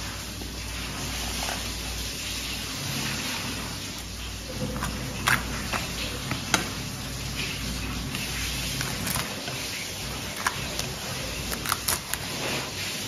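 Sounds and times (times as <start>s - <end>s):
knife cutting fish: 4.6s - 6.8s, 8.2s - 12.7s.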